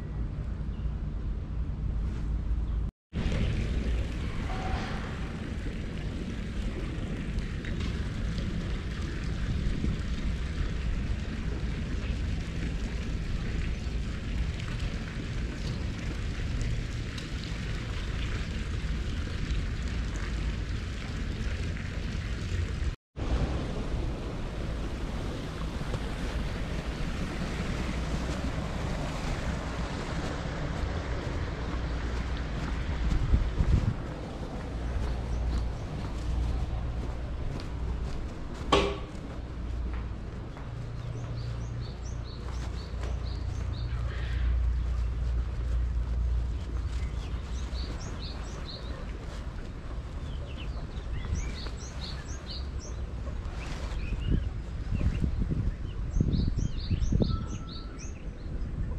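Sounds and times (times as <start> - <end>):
low steady rumble: 0.0 - 56.8
wind buffeting microphone: 2.6 - 58.9
small birds chirping: 40.4 - 49.4, 50.0 - 58.4.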